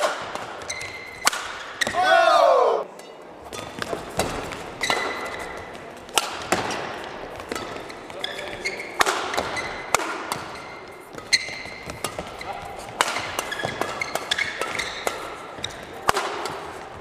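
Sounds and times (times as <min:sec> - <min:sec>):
rackets hitting shuttlecock: 0:00.0 - 0:17.0
shoes squeaking on court: 0:00.6 - 0:02.0, 0:03.0 - 0:17.0.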